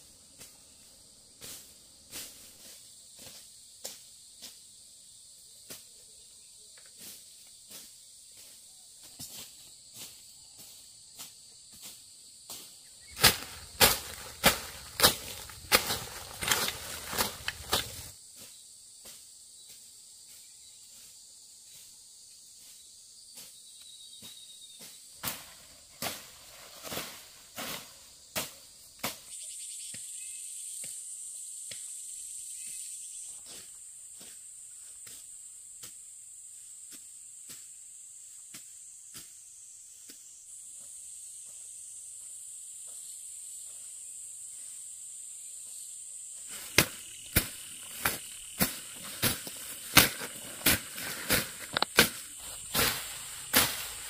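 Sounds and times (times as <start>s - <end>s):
insects chirring: 0.0s - 54.0s
sharp clicks and knocks: 49.9s - 52.9s.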